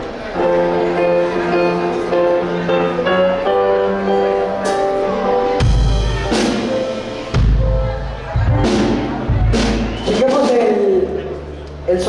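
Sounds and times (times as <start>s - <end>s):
live band playing chords: 0.0s - 12.0s
heavy drum-and-bass hit: 5.6s - 10.7s.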